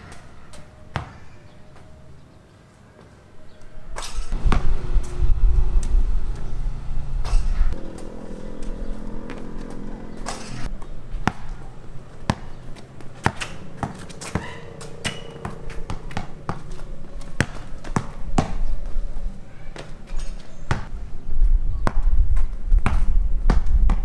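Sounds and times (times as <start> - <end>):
basketball bouncing on pavement: 0.5 - 1.9, 7.2 - 20.9, 21.8 - 24.0
passing vehicle engine: 4.3 - 19.2.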